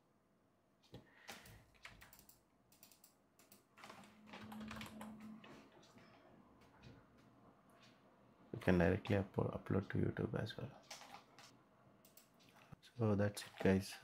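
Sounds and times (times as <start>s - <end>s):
computer keyboard typing: 1.3s - 5.9s, 10.8s - 12.6s
low hum: 3.9s - 9.4s.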